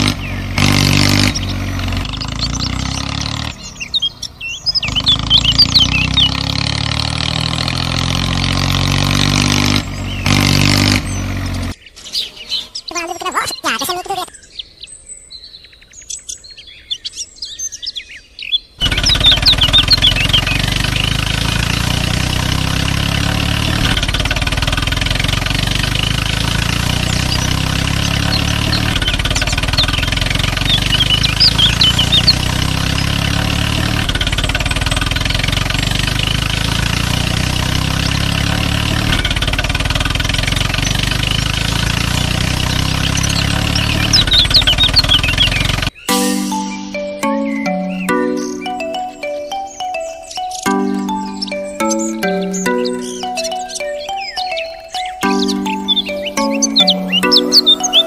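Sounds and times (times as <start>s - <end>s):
bird chirps: 0.0s - 6.6s, 9.9s - 23.8s, 26.8s - 33.2s, 42.5s - 58.0s
tractor engine running: 0.0s - 14.2s, 18.8s - 58.0s.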